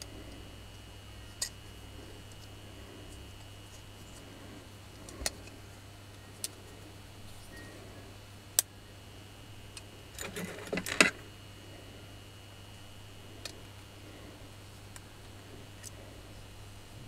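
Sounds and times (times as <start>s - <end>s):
small metal parts clicking: 10.2s - 11.2s.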